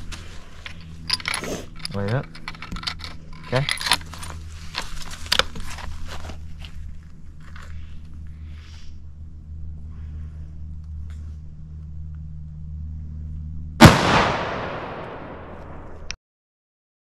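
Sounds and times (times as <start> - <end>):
low steady hum: 0.0 - 16.2
rifle shot: 13.8 - 16.1.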